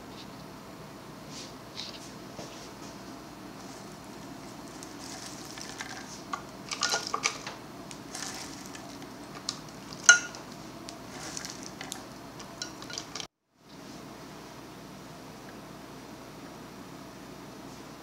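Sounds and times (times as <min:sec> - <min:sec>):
dry rustling of nuts and fruit: 0:03.6 - 0:13.3.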